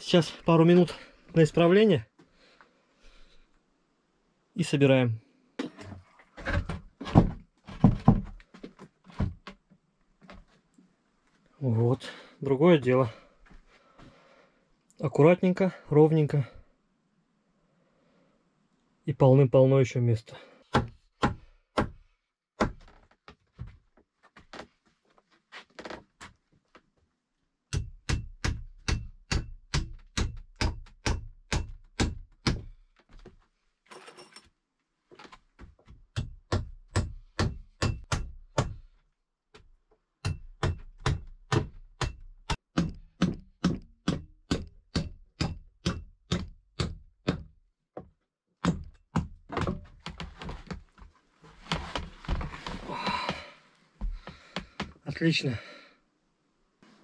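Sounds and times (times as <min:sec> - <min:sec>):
tool striking wood: 0:27.7 - 0:32.7, 0:36.1 - 0:38.9, 0:40.2 - 0:47.6, 0:48.6 - 0:49.9.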